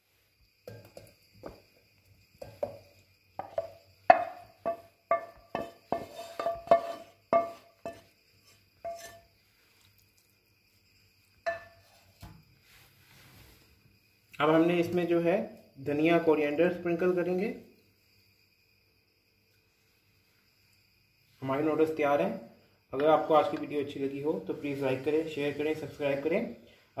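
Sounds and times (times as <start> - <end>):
wooden spoon knocking on pan: 0.6 - 1.6, 2.4 - 8.1, 11.4 - 11.8.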